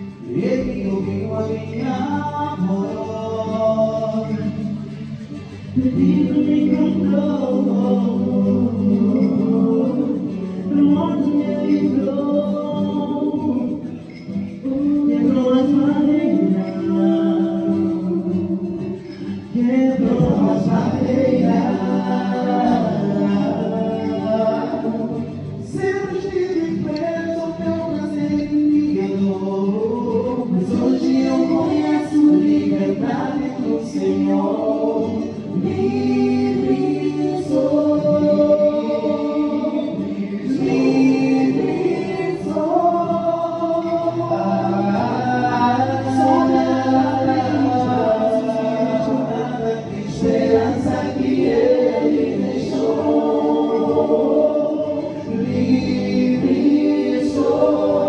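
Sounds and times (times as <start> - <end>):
group singing a cappella: 0.0 - 58.0.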